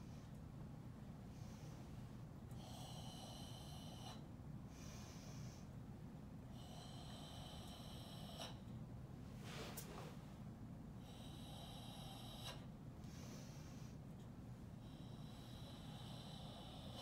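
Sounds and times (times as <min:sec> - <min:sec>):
controlled breathing exhalations: 0:14.8 - 0:17.0.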